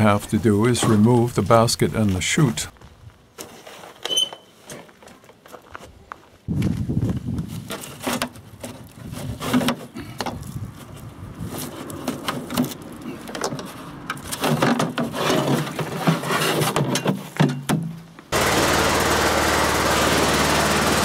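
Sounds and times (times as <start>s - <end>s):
plastic knocking and scraping on metal: 7.7s - 10.4s, 12.0s - 17.9s.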